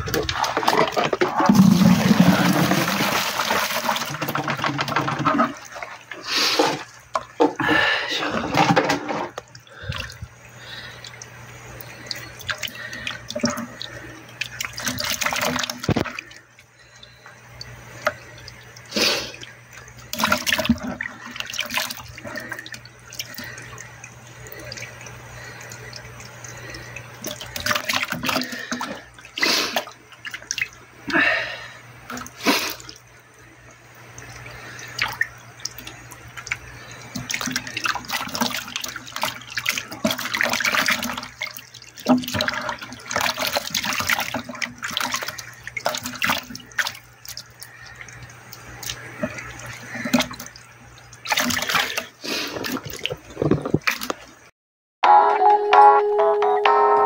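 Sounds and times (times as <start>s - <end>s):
fish splashing in water: 34.2s - 54.2s.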